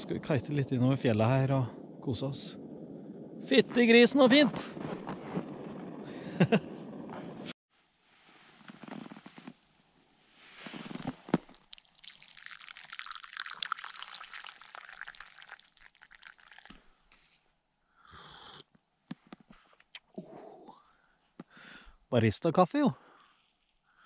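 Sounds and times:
coffee pouring into cup: 0:11.5 - 0:16.8.

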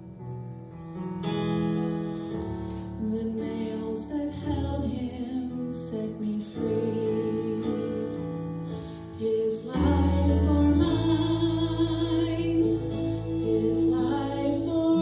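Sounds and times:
instrumental backing with bass: 0:07.1 - 0:15.0
woman singing with vibrato: 0:09.2 - 0:15.0.

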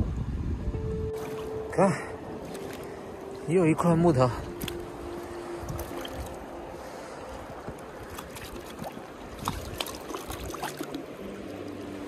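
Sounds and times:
river water trickling: 0:00.7 - 0:12.0
splashes and knocks of log: 0:01.2 - 0:01.5, 0:02.4 - 0:03.0, 0:04.6 - 0:04.9, 0:05.7 - 0:06.4, 0:07.6 - 0:11.2.

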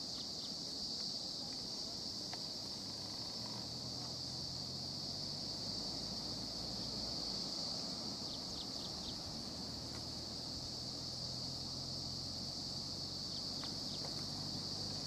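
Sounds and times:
high-pitched insect chorus: 0:00.0 - 0:15.0.

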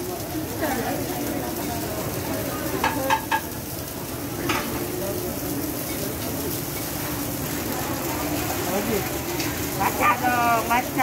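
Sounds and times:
flatbread sizzling on griddle: 0:00.0 - 0:11.0
metal spoon clinking on pans: 0:02.8 - 0:03.6.

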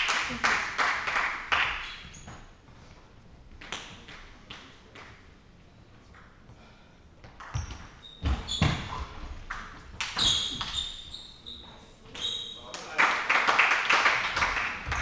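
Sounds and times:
shoes squeaking on hall floor: 0:01.8 - 0:03.0, 0:07.2 - 0:12.9.

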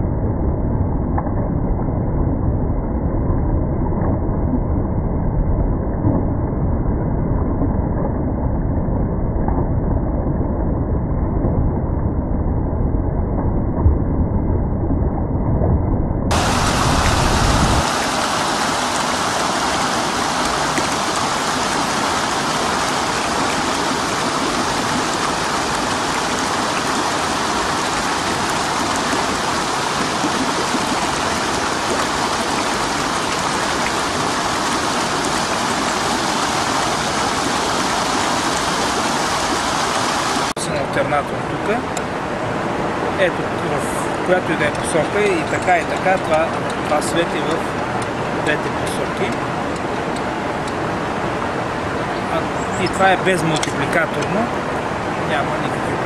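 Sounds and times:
stream water rushing: 0:16.3 - 0:56.0
water splashing against water wheel: 0:16.3 - 0:56.0.

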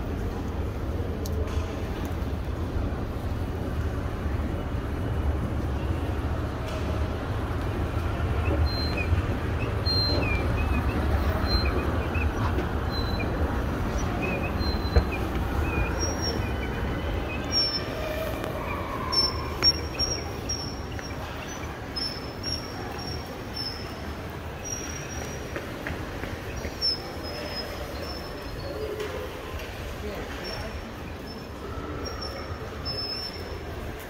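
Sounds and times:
escalator rumble: 0:02.6 - 0:25.2
high chirping squeaks: 0:07.9 - 0:25.6, 0:26.4 - 0:29.0, 0:32.1 - 0:33.7.

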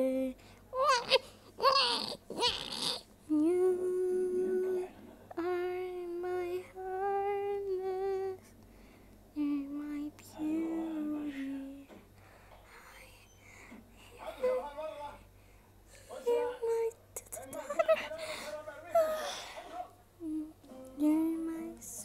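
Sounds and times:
young voice singing wordless lullaby: 0:00.0 - 0:08.6, 0:09.3 - 0:12.0, 0:20.2 - 0:22.0.

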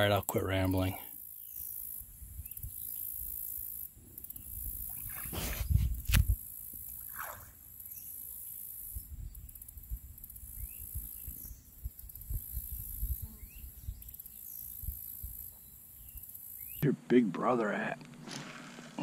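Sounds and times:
insects droning: 0:00.0 - 0:19.0
bird chirps: 0:10.5 - 0:16.8.

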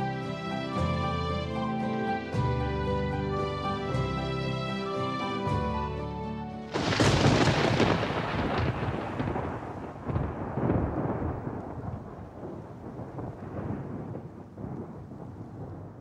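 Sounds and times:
thunderclap with rolling rumble: 0:06.7 - 0:16.0.

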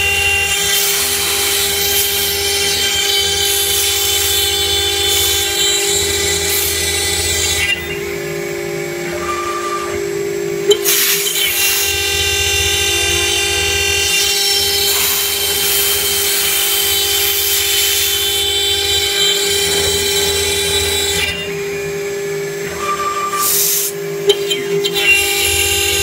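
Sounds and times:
router spindle whining: 0:00.0 - 0:26.0
bit cutting metal panel: 0:10.6 - 0:21.6.

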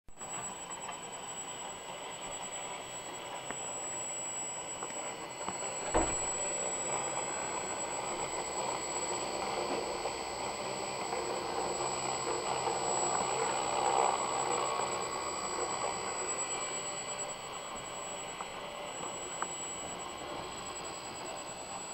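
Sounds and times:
router spindle whine: 0:00.1 - 0:21.9
sharp knock: 0:05.9 - 0:06.3.

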